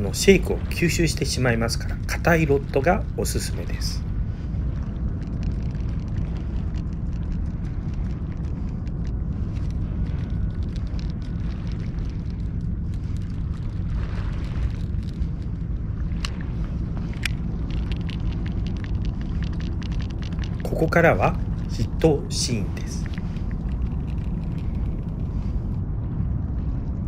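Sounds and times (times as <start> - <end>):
wind buffeting microphone: 0.0 - 27.0
faint ticks: 17.0 - 21.8.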